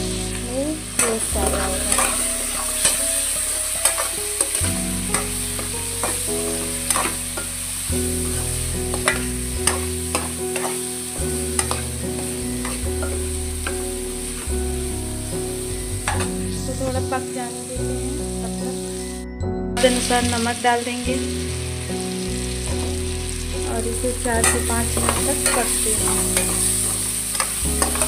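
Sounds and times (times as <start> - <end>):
food sizzling in a pan: 0.0 - 19.2, 19.8 - 28.0
spoon clinking against pan: 24.4 - 26.7.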